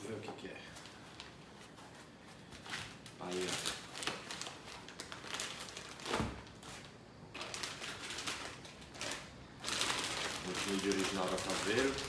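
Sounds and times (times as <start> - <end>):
plastic bag crinkling: 2.5 - 12.0.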